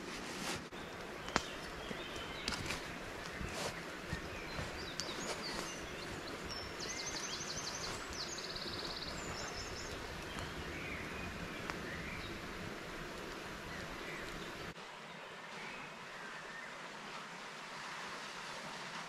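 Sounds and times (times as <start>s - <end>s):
stream hissing: 0.0s - 19.0s
birdsong with fast trill: 0.7s - 12.4s.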